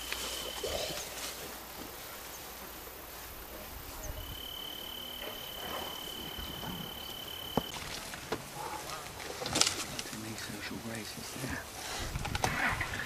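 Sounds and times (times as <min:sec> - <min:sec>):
insect trilling: 0:00.0 - 0:01.2, 0:04.0 - 0:07.8.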